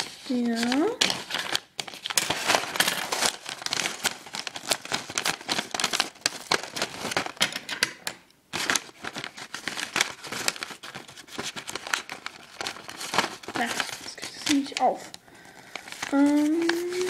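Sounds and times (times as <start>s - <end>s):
scissors snipping paper and plastic: 0.0s - 1.6s
paper and plastic crinkling: 0.0s - 17.0s.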